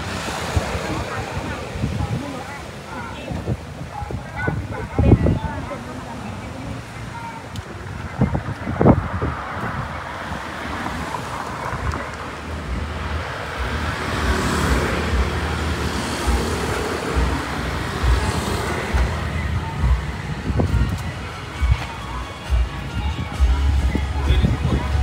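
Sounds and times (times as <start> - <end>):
road traffic passing: 0.0 - 25.0
wind thumps on microphone: 7.5 - 10.4, 16.3 - 21.9.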